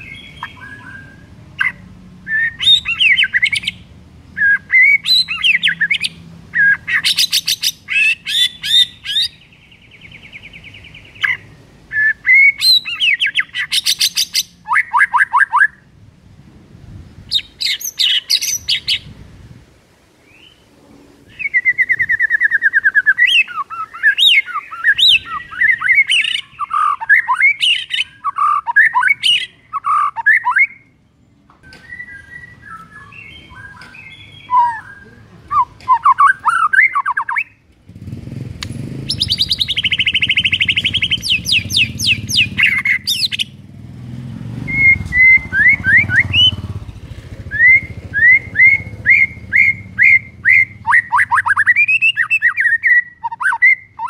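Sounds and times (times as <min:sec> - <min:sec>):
bird singing varied song: 0:00.0 - 0:15.9, 0:17.0 - 0:19.2, 0:20.2 - 0:54.0
low steady rumble: 0:15.8 - 0:23.1, 0:37.4 - 0:52.8.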